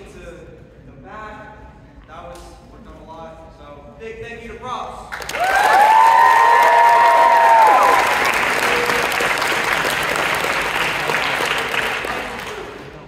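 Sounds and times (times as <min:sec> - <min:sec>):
audience applauding: 0:05.2 - 0:13.0
high-pitched cheers and whoops: 0:05.3 - 0:09.0.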